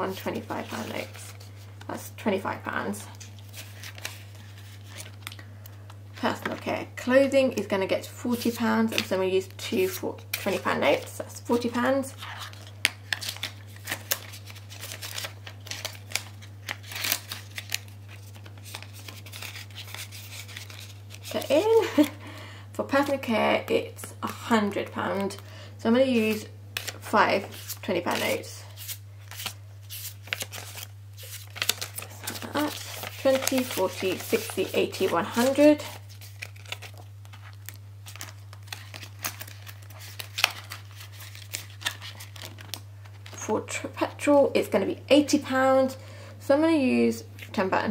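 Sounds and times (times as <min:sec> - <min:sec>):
low steady hum: 0:00.0 - 0:47.9
banknotes and plastic crinkling: 0:03.0 - 0:06.8, 0:08.3 - 0:22.4, 0:26.2 - 0:43.4.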